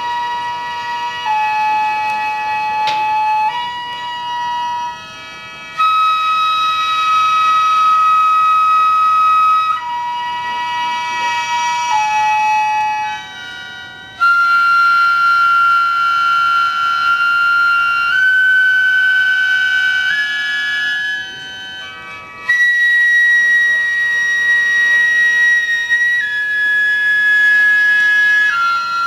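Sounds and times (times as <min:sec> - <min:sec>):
wind instrument melody in held notes: 0:00.0 - 0:29.0
steady sustained chord: 0:15.2 - 0:22.6.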